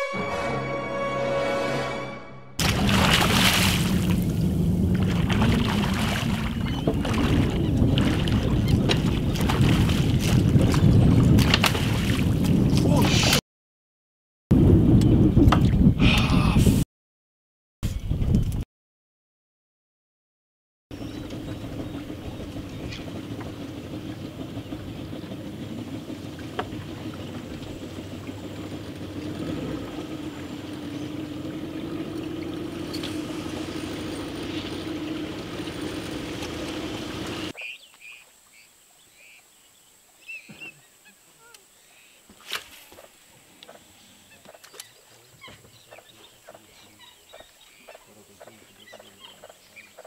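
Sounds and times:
boat motor humming: 0:00.0 - 0:11.7, 0:20.9 - 0:37.6.

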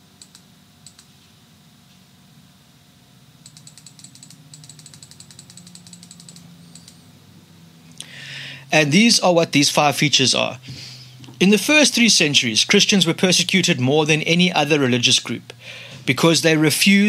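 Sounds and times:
low steady hum: 0:00.0 - 0:17.0
typing on computer keyboard: 0:03.5 - 0:07.0.

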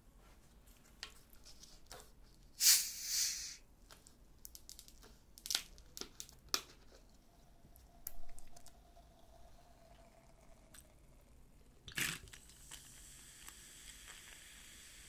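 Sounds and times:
short burst of hiss: 0:02.6 - 0:03.6.

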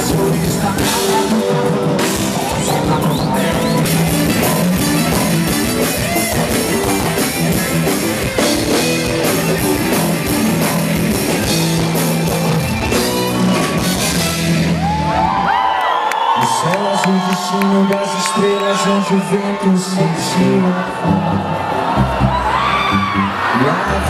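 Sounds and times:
percussion drums: 0:00.0 - 0:15.0
drum kit: 0:00.0 - 0:15.6
guitar: 0:00.0 - 0:15.8, 0:17.4 - 0:24.0.

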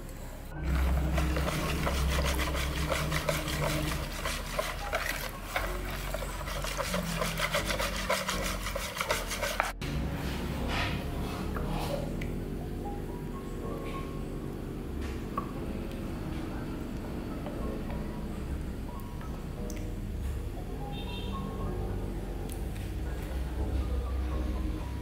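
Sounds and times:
whisk scraping plastic bowl: 0:00.6 - 0:09.8.

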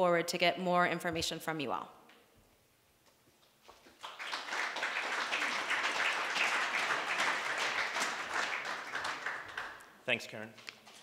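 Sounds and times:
audience applauding: 0:03.9 - 0:09.9.

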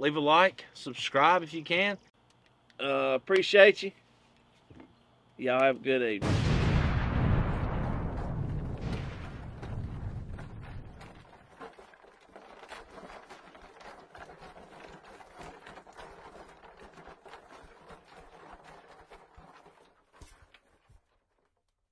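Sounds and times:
faint dense crackle: 0:06.2 - 0:21.9.

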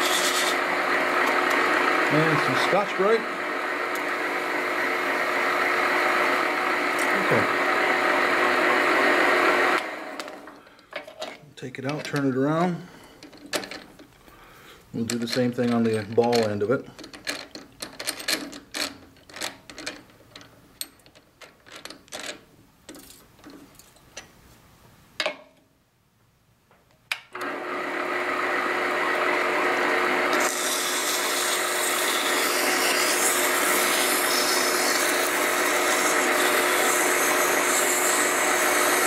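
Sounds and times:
sandpaper hissing on spinning metal: 0:00.0 - 0:00.6, 0:30.4 - 0:39.0
lathe running: 0:00.0 - 0:10.6, 0:27.4 - 0:39.0.

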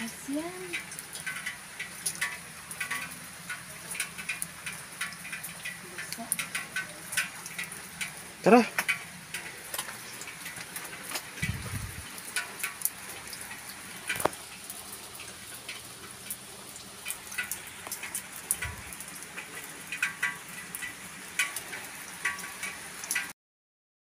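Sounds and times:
rain falling: 0:00.0 - 0:23.4
low thumps: 0:11.4 - 0:12.1.

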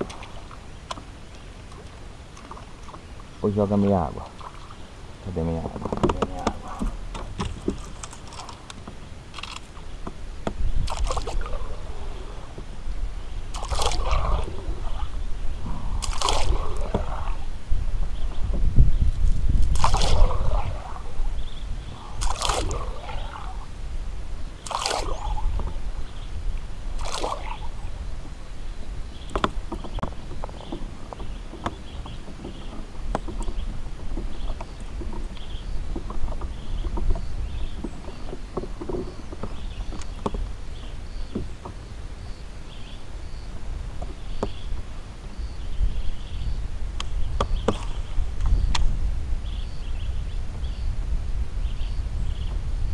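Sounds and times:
water sloshing against hull: 0:00.0 - 0:51.4
wind rumbling on microphone: 0:00.0 - 0:52.9
short swishes: 0:15.9 - 0:17.5, 0:19.7 - 0:21.2, 0:22.0 - 0:23.6, 0:24.6 - 0:25.6.

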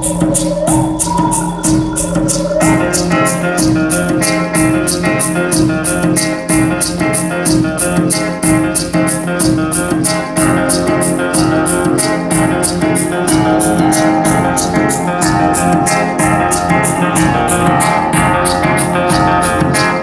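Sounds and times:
music over loudspeakers: 0:00.0 - 0:20.0.

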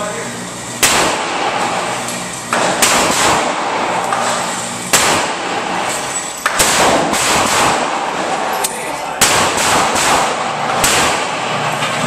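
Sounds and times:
rifle shots echoing indoors: 0:00.8 - 0:01.9, 0:02.5 - 0:08.6, 0:09.2 - 0:11.7.

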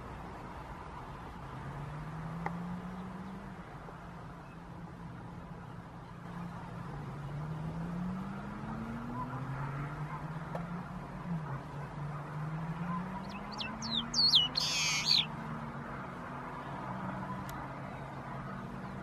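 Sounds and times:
vehicle engines revving: 0:06.2 - 0:19.0
outdoor background hiss: 0:09.8 - 0:16.0.

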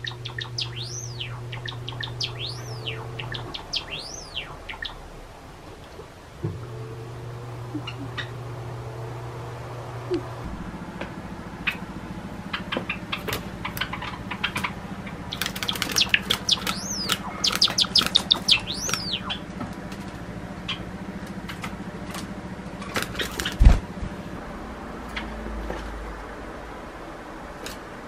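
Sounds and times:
sparrow singing: 0:00.0 - 0:05.2, 0:07.7 - 0:08.4, 0:12.5 - 0:19.5.

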